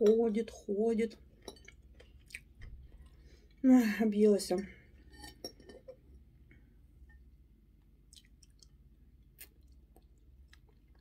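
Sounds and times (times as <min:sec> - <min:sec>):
person chewing: 0:01.4 - 0:03.2, 0:08.1 - 0:11.0.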